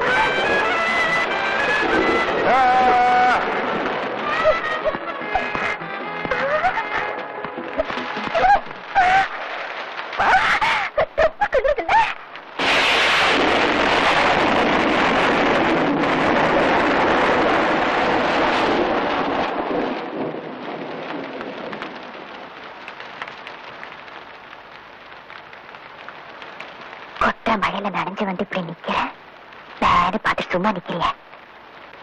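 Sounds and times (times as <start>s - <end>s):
thunder crash: 0.0s - 10.3s, 12.6s - 22.5s
heavy rain: 0.0s - 32.0s
vocal cries: 2.4s - 3.6s, 4.2s - 7.1s, 8.2s - 9.4s, 10.2s - 12.2s.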